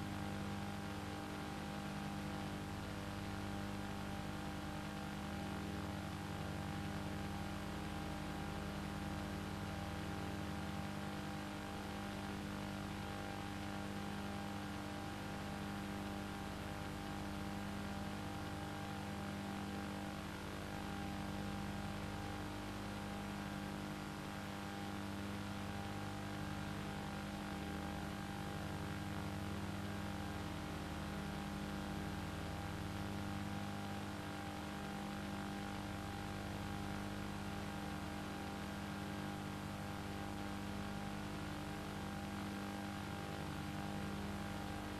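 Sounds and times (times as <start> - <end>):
steady mechanical hum: 0.0 - 44.9.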